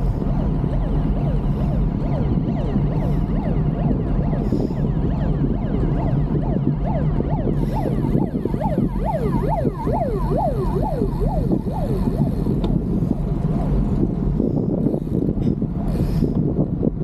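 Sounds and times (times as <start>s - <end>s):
siren yelping: 0.0s - 12.7s
low rumble: 0.0s - 17.0s.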